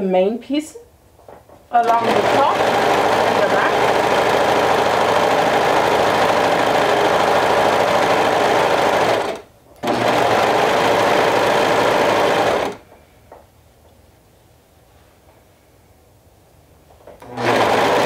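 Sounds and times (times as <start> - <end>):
serger stitching: 1.7 - 12.8, 17.2 - 18.0.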